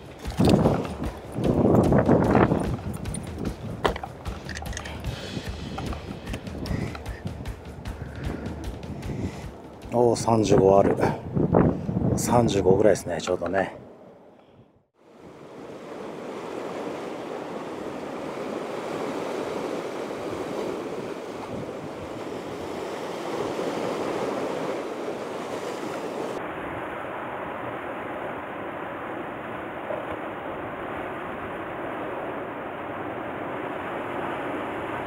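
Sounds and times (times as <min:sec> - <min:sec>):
wind on microphone: 0:00.0 - 0:13.0, 0:14.6 - 0:35.0
surf breaking on rocky shore: 0:15.1 - 0:35.0.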